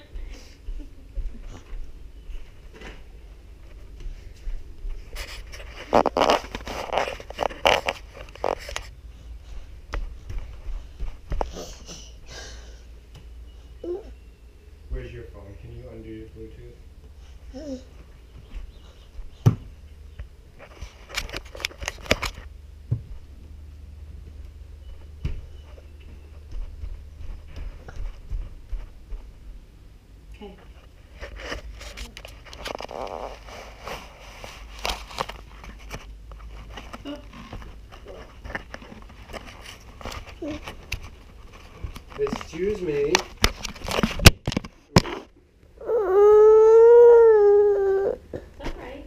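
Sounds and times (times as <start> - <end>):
camera jostling clicks and knocks: 21.0 - 22.5, 43.1 - 45.2.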